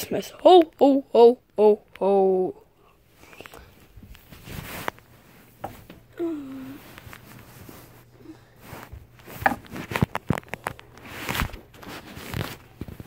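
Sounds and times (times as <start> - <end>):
plush toy rustle: 3.2 - 5.7, 6.6 - 13.0.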